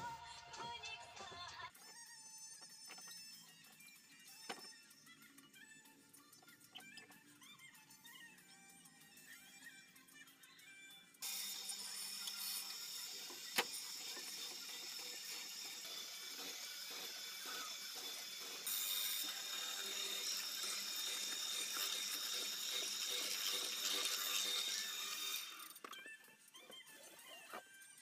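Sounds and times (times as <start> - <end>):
mortising machine motor whine: 11.2 - 26.2.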